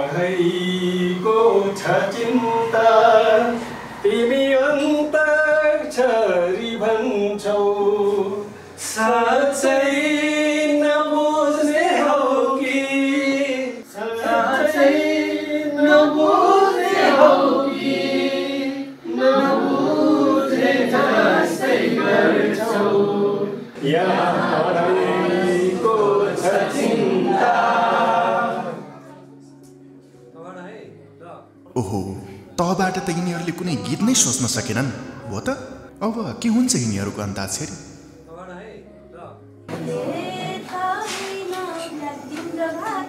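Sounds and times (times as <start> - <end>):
group singing unaccompanied: 0.0 - 29.2, 39.7 - 43.0.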